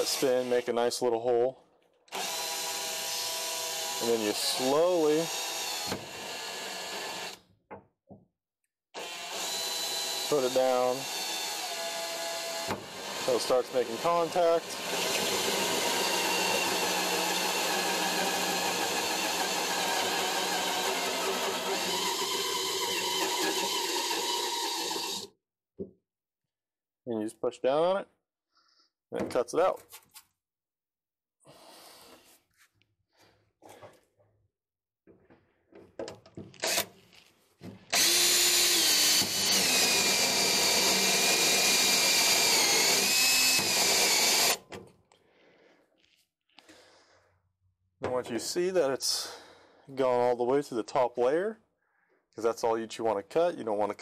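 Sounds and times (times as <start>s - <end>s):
cordless drill cutting steel: 0.0s - 0.8s, 2.1s - 7.4s, 9.0s - 25.3s, 36.6s - 36.9s, 37.9s - 44.6s.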